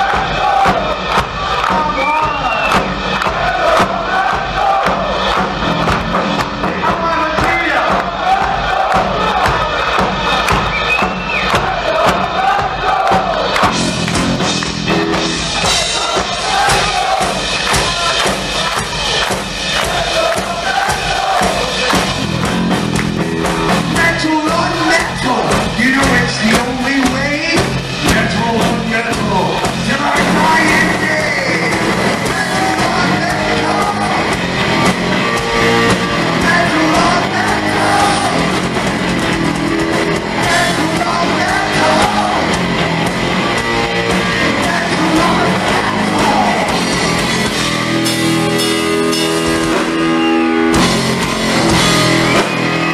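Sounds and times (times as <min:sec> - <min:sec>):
bass guitar: 0:00.0 - 0:52.9
drums: 0:00.0 - 0:52.9
electric guitar: 0:21.8 - 0:52.9
person singing: 0:24.0 - 0:34.4, 0:36.2 - 0:38.5, 0:40.2 - 0:42.7, 0:44.1 - 0:47.2.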